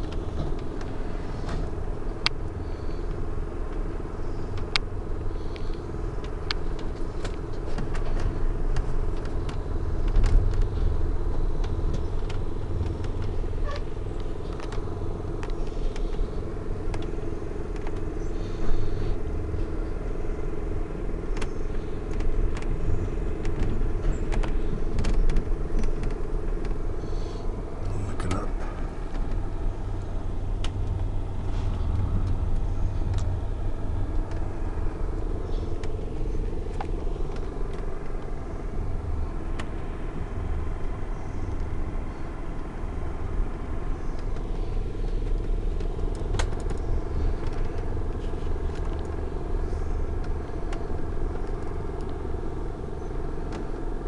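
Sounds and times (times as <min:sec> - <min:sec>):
steady hum: 0:00.0 - 0:54.0
train rumble from inside: 0:00.0 - 0:54.0
sharp clicks and creaks: 0:05.6 - 0:11.0, 0:11.6 - 0:18.1, 0:21.2 - 0:26.8, 0:27.8 - 0:33.4, 0:34.0 - 0:38.4, 0:44.0 - 0:52.2, 0:52.9 - 0:53.8.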